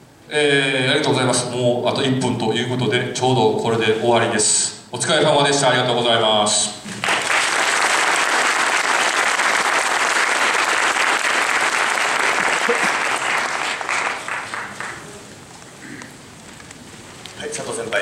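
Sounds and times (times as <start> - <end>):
audience applauding: 6.9 - 15.3.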